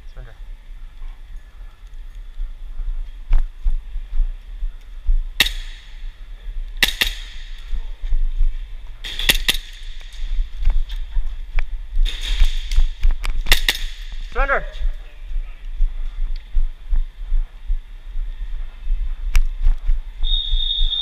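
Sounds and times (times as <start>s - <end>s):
low rumble: 0.0s - 21.0s
airsoft guns firing: 5.4s - 6.1s, 6.8s - 7.9s, 9.0s - 10.4s, 12.0s - 14.3s.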